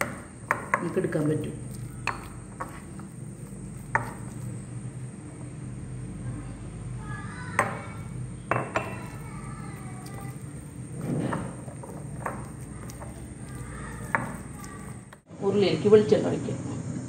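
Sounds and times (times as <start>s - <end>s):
spoon stirring paste: 0.0s - 5.2s, 7.6s - 15.3s.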